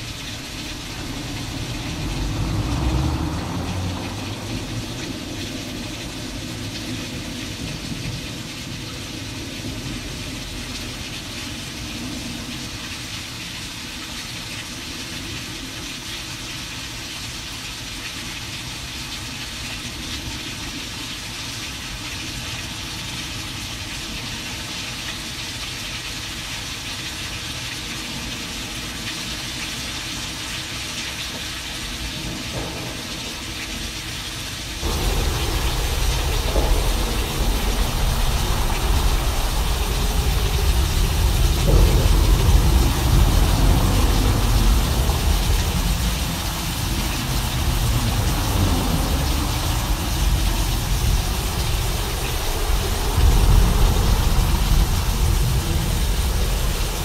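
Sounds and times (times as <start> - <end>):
thunder rumbling: 0.0 - 6.6, 34.8 - 57.0
rain-like hiss: 0.0 - 57.0.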